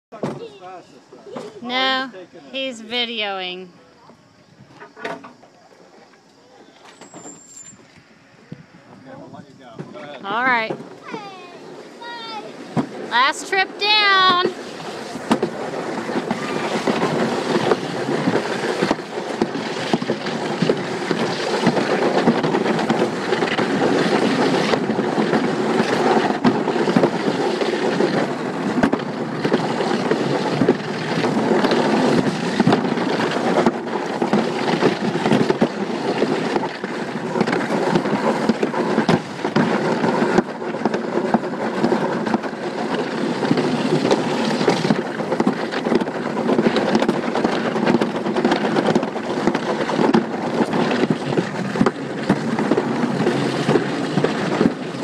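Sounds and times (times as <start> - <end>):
sled rolling on concrete track: 0.1 - 55.0
wind on microphone: 11.7 - 55.0.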